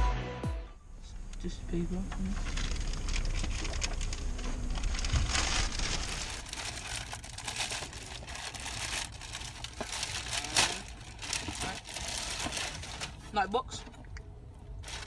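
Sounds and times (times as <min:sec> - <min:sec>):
plastic bag crinkling: 0:02.3 - 0:13.5, 0:14.7 - 0:15.0.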